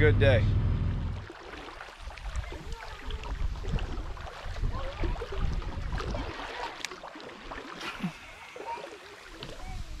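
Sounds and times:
water lapping against boat: 0:00.0 - 0:10.0
wind buffeting microphone: 0:02.2 - 0:06.5.

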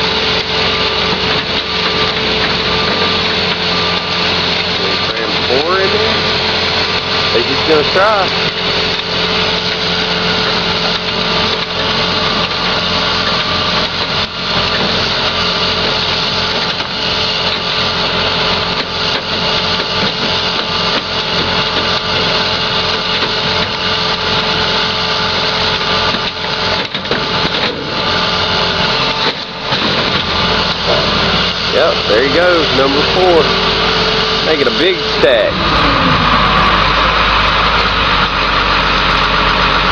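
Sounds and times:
heavy machinery engines running: 0:00.0 - 0:39.9.

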